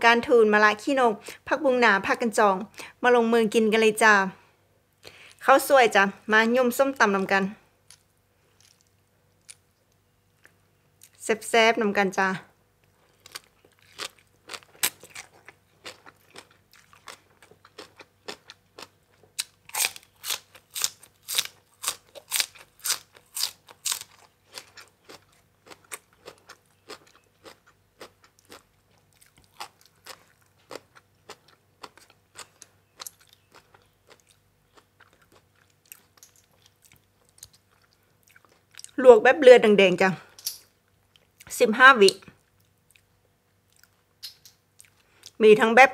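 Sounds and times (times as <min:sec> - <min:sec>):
crunching and chewing vegetables: 0:07.8 - 0:11.2, 0:12.8 - 0:39.0, 0:40.8 - 0:45.4.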